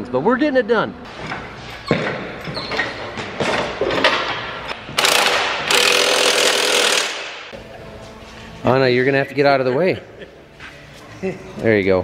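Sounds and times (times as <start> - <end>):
ratchet clicks: 5.0 - 7.2
impact wrench running: 5.0 - 7.5.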